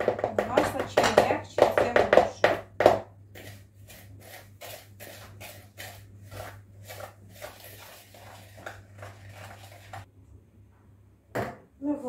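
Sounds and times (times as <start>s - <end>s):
whisk scraping in a bowl: 3.4s - 10.1s.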